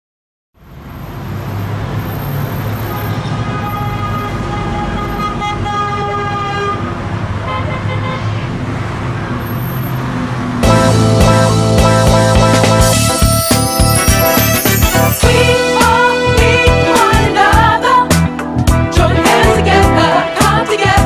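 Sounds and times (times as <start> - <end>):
city street traffic: 0.6 - 21.0
car horns: 2.6 - 8.6, 12.6 - 17.1.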